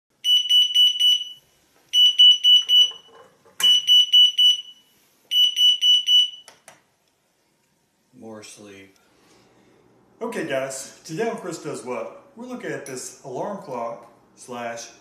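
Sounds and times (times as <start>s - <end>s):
alarm clock high-pitched beeps: 0.2s - 6.5s.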